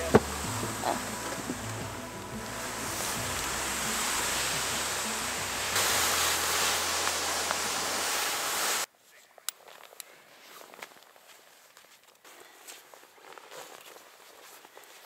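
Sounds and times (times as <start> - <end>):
music: 0.0 - 8.4
loud steady rushing hiss: 0.0 - 8.9
footsteps crunching in snow: 0.0 - 15.0.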